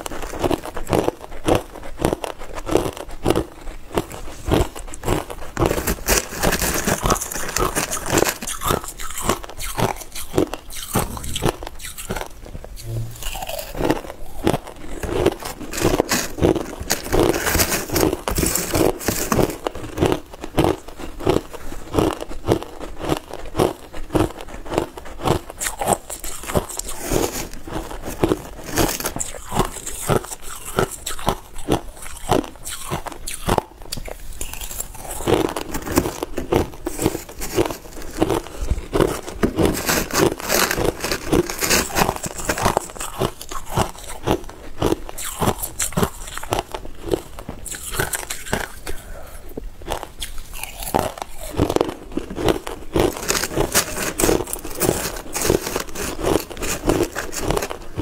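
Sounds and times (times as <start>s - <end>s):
chewing crushed ice: 0.0s - 58.0s
spoon scooping crushed ice: 4.6s - 12.2s, 12.8s - 20.2s, 25.6s - 30.1s, 34.4s - 44.0s, 52.4s - 58.0s.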